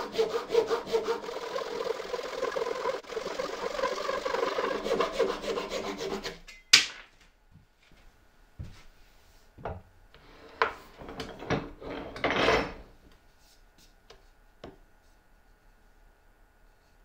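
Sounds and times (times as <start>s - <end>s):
wood rubbing scrape: 0.0s - 6.4s.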